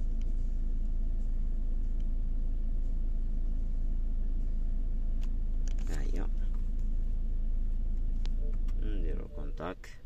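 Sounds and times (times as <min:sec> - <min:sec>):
deep hum: 0:00.0 - 0:10.0
low mechanical rumble: 0:00.0 - 0:10.0.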